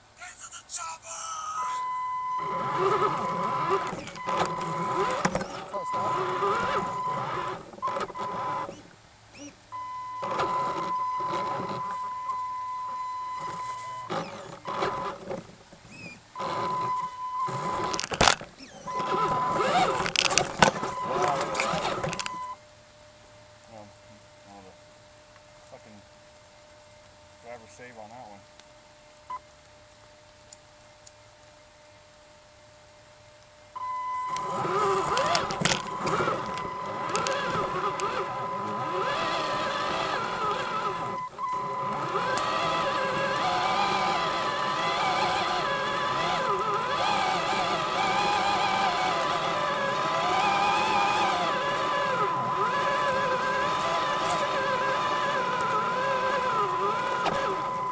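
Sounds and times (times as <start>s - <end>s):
electric motor whining: 1.5s - 22.6s, 33.8s - 57.9s.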